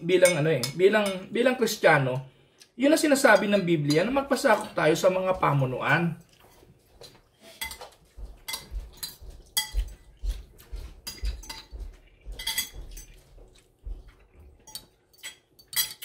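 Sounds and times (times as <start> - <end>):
cutlery clinking on plates: 7.0 - 16.0.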